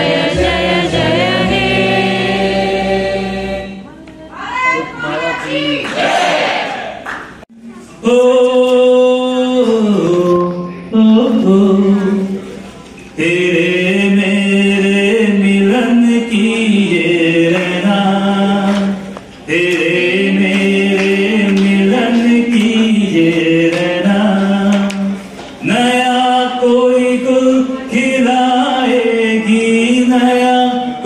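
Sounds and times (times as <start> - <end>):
man singing over speakers: 8.0 - 12.5, 13.1 - 31.0.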